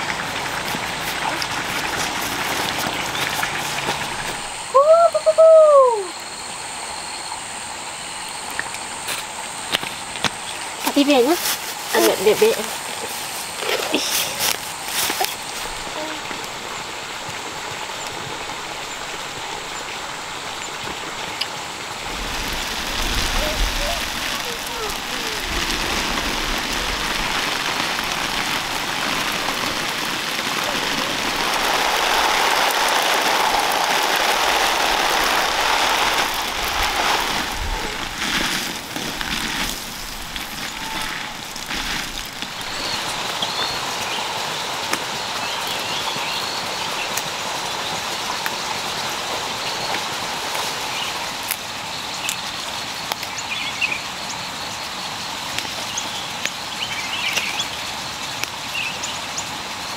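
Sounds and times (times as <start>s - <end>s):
hose water spraying on leaves: 0.0s - 7.7s, 8.3s - 59.9s
small rustles: 9.1s - 16.6s, 22.0s - 43.5s.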